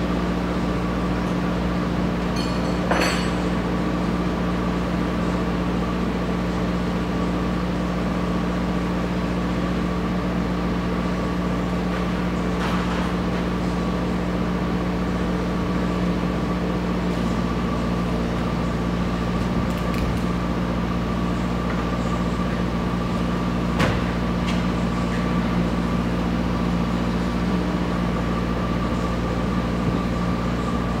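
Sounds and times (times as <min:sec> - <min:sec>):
engine idling hum: 0:00.0 - 0:31.0.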